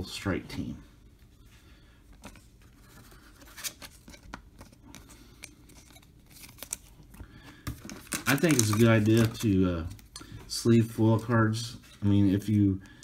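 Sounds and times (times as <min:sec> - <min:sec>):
plastic card sleeve rustling: 0:02.1 - 0:10.2.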